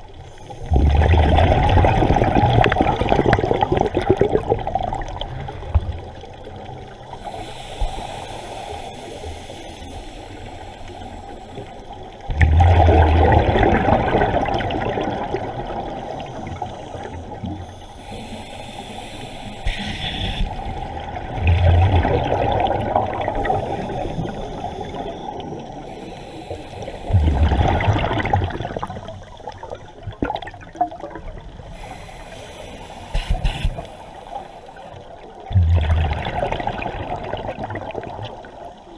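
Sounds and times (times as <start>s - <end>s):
regulator exhalation bubbling: 0.7s - 4.9s, 27.1s - 30.6s, 35.4s - 38.2s
watery hiss: 5.9s - 38.8s.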